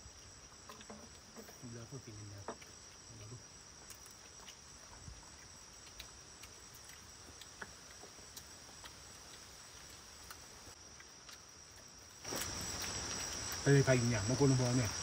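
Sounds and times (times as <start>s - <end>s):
insects trilling: 0.0s - 15.0s
faint ticks and taps: 0.6s - 9.5s.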